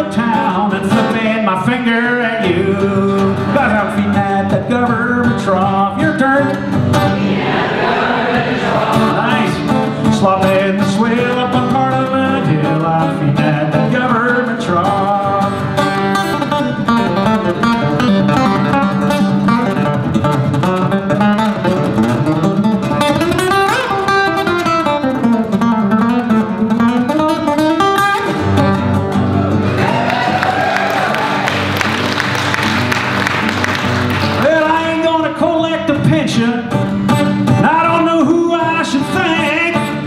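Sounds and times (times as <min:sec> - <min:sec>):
person singing: 0:00.0 - 0:15.8
acoustic guitar strumming: 0:00.0 - 0:40.0.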